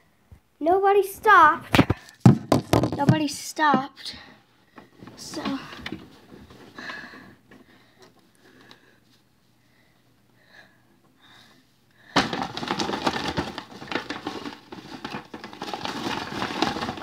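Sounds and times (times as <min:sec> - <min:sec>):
paper bag rustling: 0:12.2 - 0:17.0.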